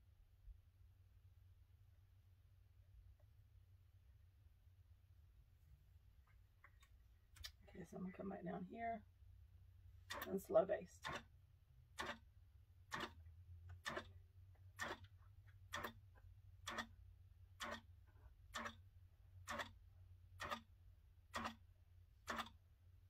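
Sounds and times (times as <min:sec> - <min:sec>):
quilting machine needle clicks: 0:10.0 - 0:10.4, 0:11.0 - 0:11.3, 0:11.9 - 0:12.3, 0:12.9 - 0:14.2, 0:14.8 - 0:17.0, 0:17.6 - 0:17.9, 0:18.5 - 0:19.8, 0:20.4 - 0:22.6.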